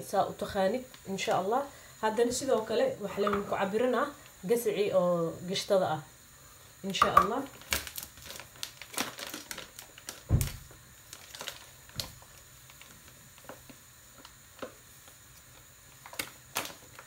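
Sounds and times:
kitchen things clicking and knocking: 3.2s - 3.6s.

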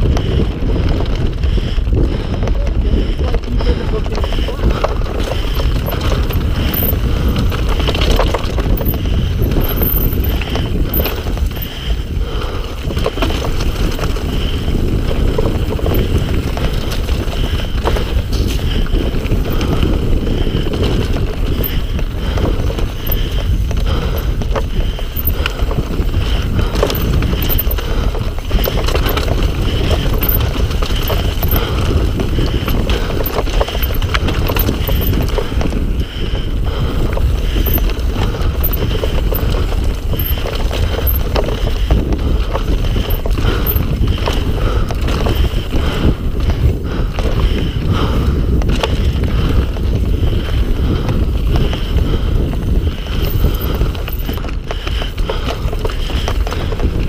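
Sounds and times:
bike chain and frame rattling: 0.0s - 57.0s
wind on microphone: 0.0s - 57.0s
tyres running over stones: 12.9s - 36.1s.

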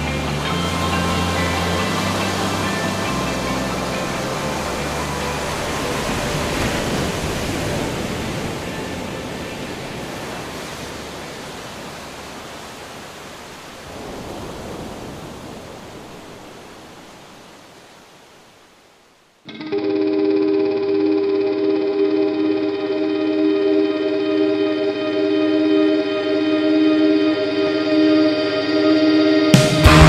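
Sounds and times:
small waves breaking on beach: 0.0s - 19.5s.

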